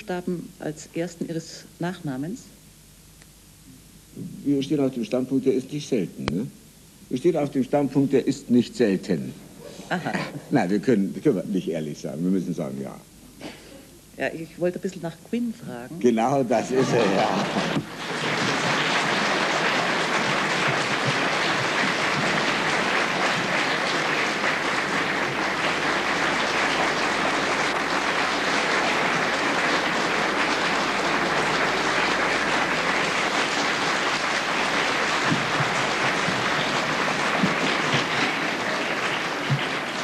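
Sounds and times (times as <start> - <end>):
studio audience applauding: 16.5 - 40.0.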